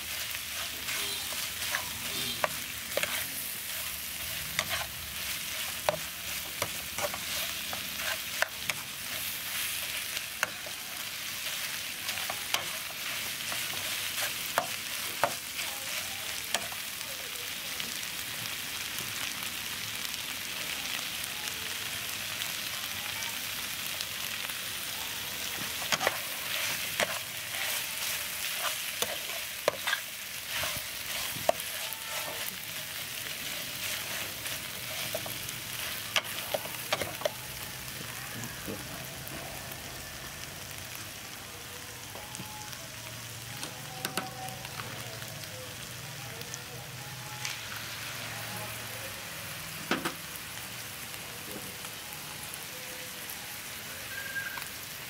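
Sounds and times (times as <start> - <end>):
spatula scraping a wok: 0.0 - 16.8, 25.7 - 37.4
food sizzling: 0.0 - 55.0.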